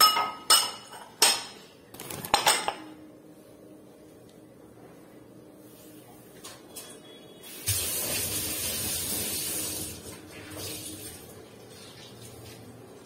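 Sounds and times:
water splashing into sink: 7.6s - 12.7s.

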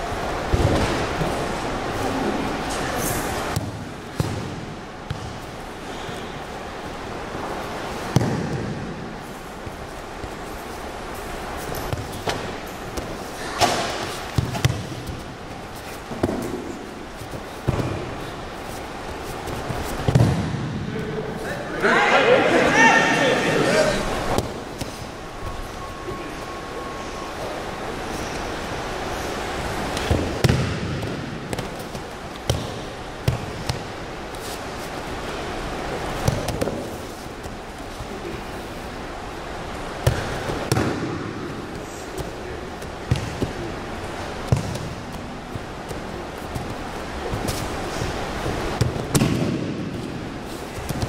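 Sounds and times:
bodies thudding on gym mat: 42.2s - 50.2s.

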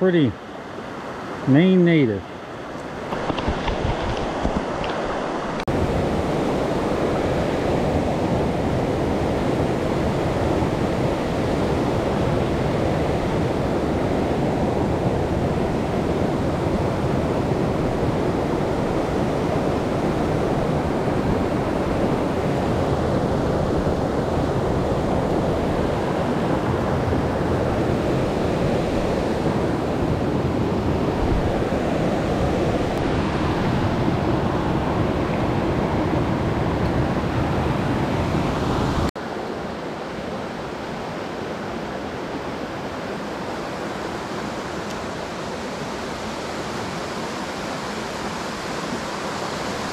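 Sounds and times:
stream running over stones: 3.0s - 5.7s.

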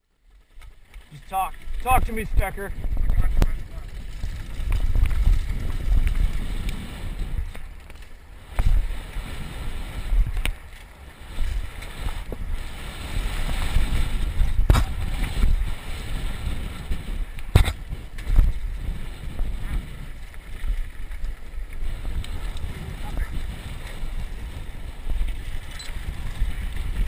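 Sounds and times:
tyres rolling over gravel trail: 0.0s - 27.0s
wind buffeting microphone: 0.9s - 27.0s
bike knocks and rattles: 2.7s - 8.9s, 13.4s - 27.0s.

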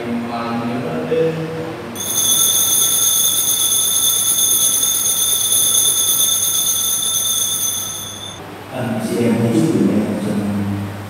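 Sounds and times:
altar bell ringing: 2.0s - 8.4s.

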